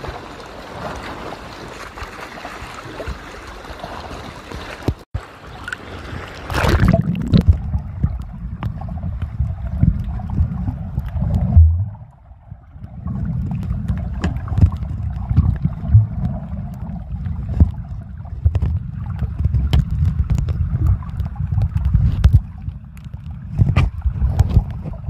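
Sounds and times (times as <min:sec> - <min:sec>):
underwater water sloshing rumble: 0:00.0 - 0:25.0
sharp clicks and crackles: 0:12.7 - 0:25.0.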